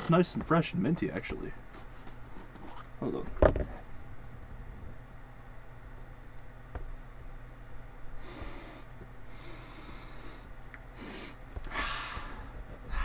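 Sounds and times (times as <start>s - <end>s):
man sniffing: 8.2s - 13.0s.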